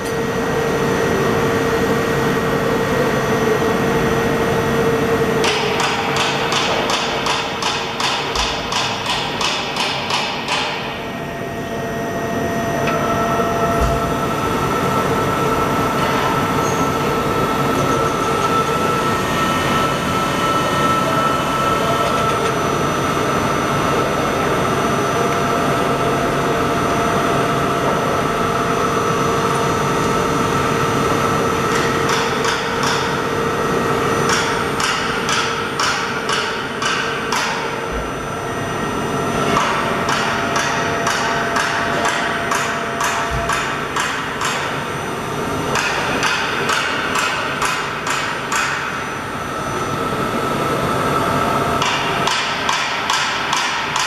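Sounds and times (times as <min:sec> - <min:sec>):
machine hum with whine: 0:00.0 - 0:54.0
sharp mechanical clicks and knocks: 0:05.4 - 0:10.9, 0:31.7 - 0:33.2, 0:39.5 - 0:44.8, 0:45.7 - 0:48.9, 0:51.8 - 0:54.0.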